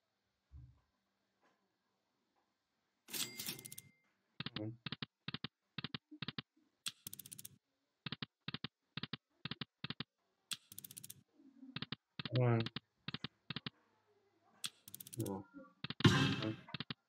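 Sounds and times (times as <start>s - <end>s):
slot machine reels clicking: 3.1s - 3.9s, 10.5s - 11.2s, 14.7s - 15.3s.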